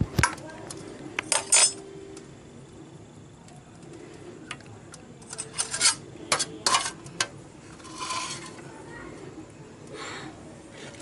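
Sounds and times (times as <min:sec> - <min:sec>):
clinks on a steel plate: 0:01.2 - 0:01.9, 0:05.2 - 0:08.6
scraping rustle: 0:07.6 - 0:08.7.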